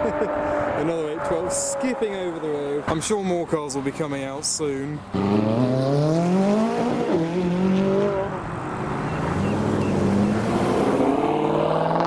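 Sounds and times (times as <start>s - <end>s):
sports car accelerating: 0.0s - 2.9s, 5.0s - 12.0s
another car engine: 5.0s - 12.0s.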